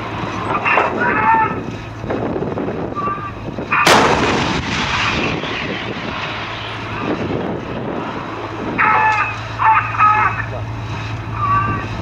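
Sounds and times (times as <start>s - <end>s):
long rumbling echo: 0.0s - 12.0s
tank gun firing: 3.8s - 6.9s.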